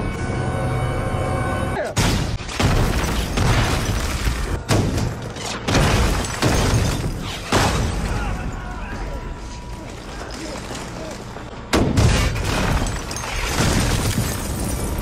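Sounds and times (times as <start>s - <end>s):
low droning music: 0.0s - 2.0s.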